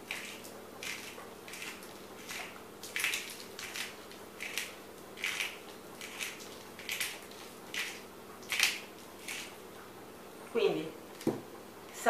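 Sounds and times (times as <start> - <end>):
pepper mill grinding: 0.0 - 9.5.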